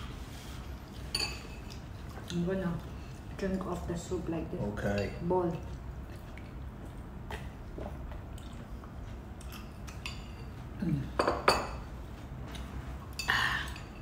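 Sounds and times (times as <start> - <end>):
spoons clinking against bowls: 1.1 - 1.8, 9.8 - 10.6.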